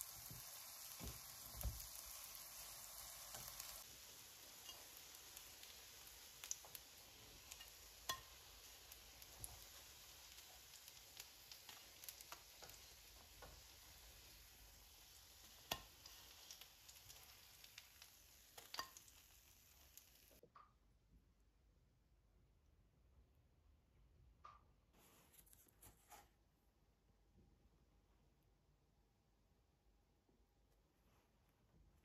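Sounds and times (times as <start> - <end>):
faint sizzling in oil: 0.0 - 20.4.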